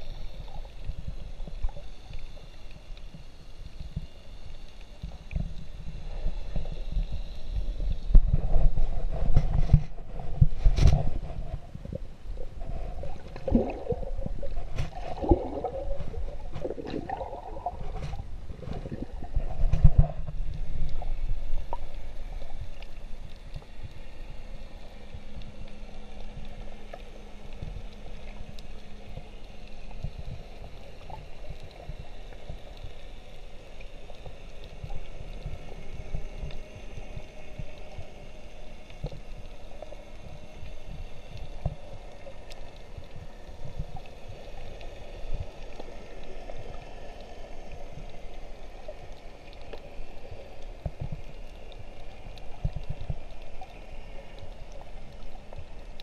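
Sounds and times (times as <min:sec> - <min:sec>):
faint low hum: 0:00.0 - 0:56.0
low underwater rumble: 0:00.0 - 0:56.0
water sloshing and gurgling: 0:00.0 - 0:56.0.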